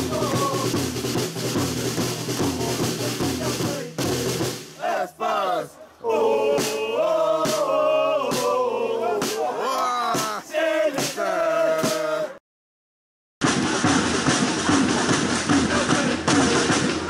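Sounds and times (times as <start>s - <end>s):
football supporters chanting: 0.0s - 0.9s, 2.0s - 12.4s, 15.4s - 16.9s
steady drum beat: 0.0s - 5.1s, 6.3s - 12.3s, 13.4s - 17.0s.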